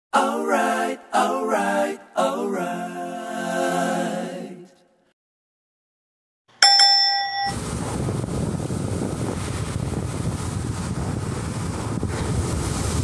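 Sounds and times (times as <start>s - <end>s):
bell-like notification chime: 6.6s - 7.6s.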